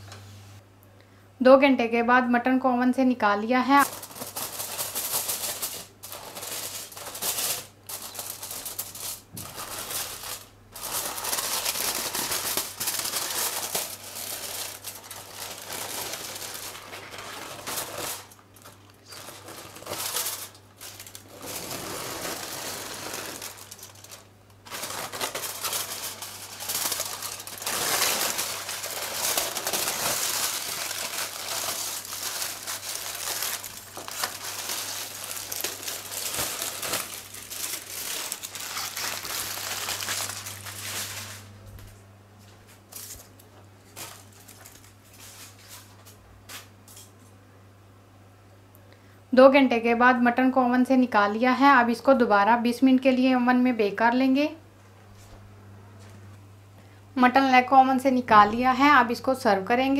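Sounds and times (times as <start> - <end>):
aluminium foil crinkling and tearing: 3.8 - 41.5, 42.8 - 47.1.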